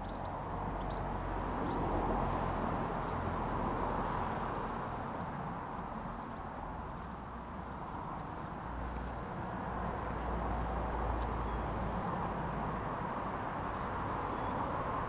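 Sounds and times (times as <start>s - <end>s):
distant road traffic hum: 0.0s - 15.0s.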